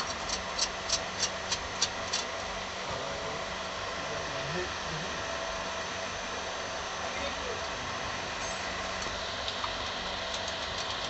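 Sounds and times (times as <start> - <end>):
train coach running noise: 0.0 - 11.0.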